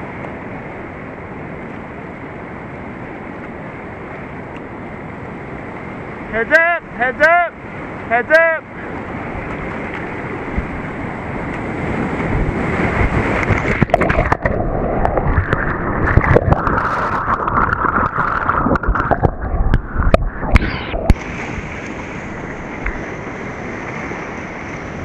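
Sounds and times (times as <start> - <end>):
whitewater rapid rushing: 0.1 - 25.0
sharp knocks and sloshes: 11.4 - 23.2
muffled underwater gurgling: 13.6 - 21.3.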